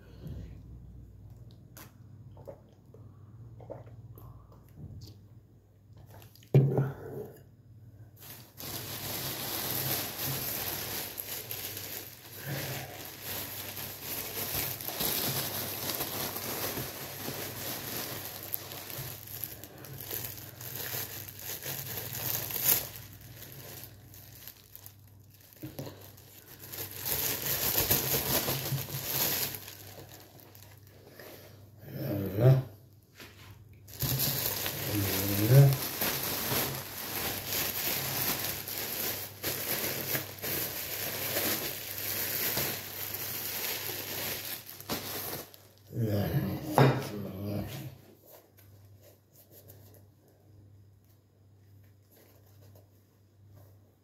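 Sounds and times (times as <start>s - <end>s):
plastic bag crinkling: 8.2s - 31.3s, 33.8s - 45.9s.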